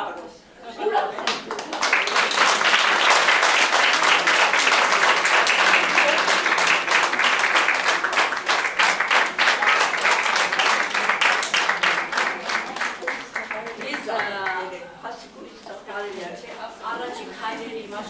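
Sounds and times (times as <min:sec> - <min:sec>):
audience applauding: 0:01.2 - 0:14.6.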